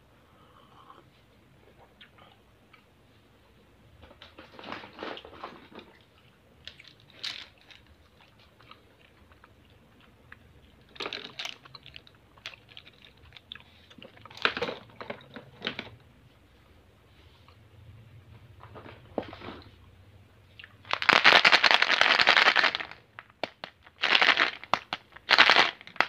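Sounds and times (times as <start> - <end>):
wooden pencils clattering: 6.8 - 8.0, 10.9 - 13.0, 20.9 - 23.0, 23.9 - 26.0.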